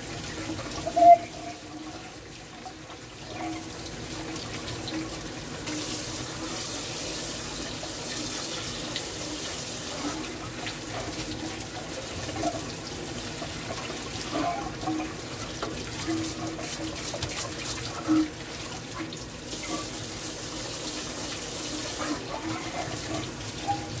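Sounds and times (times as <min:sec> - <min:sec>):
pot being scrubbed: 0:00.4 - 0:03.8, 0:05.7 - 0:24.0
tap water splashing onto pot: 0:07.4 - 0:24.0.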